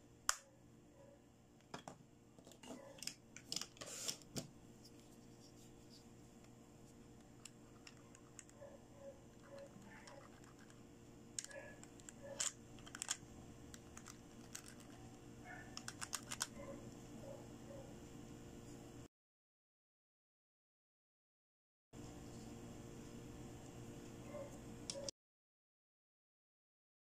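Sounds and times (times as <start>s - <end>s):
faint steady hum: 0.0s - 19.1s, 22.0s - 25.1s
plastic toy tool clicking on teeth: 15.7s - 16.5s.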